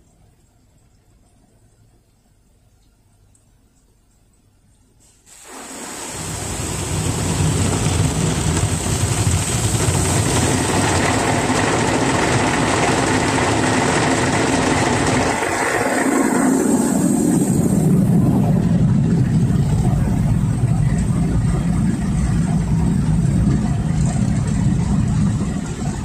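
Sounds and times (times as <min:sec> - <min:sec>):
car wash water jets on car: 0:05.0 - 0:26.0.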